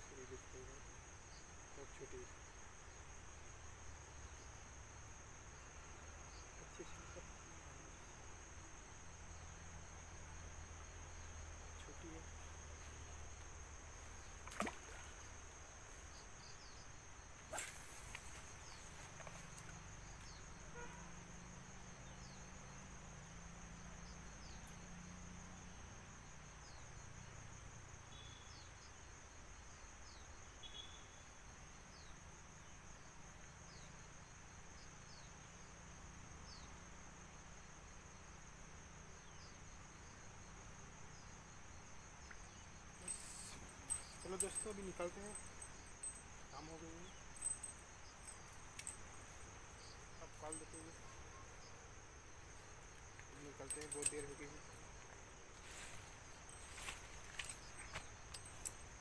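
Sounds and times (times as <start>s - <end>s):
high-pitched insect drone: 42.3s - 59.0s.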